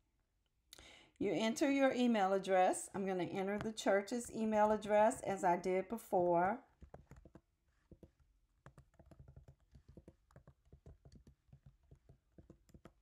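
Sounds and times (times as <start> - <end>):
typing on computer keyboard: 6.8 - 13.0.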